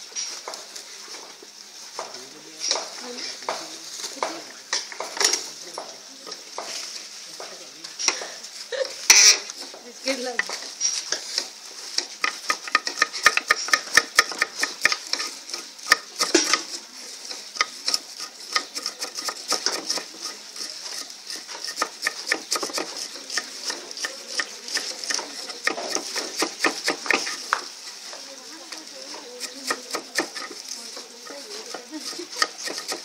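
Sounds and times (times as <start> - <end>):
knife chopping on wooden board: 12.0 - 15.2, 21.3 - 27.7, 29.4 - 30.6, 31.7 - 33.0.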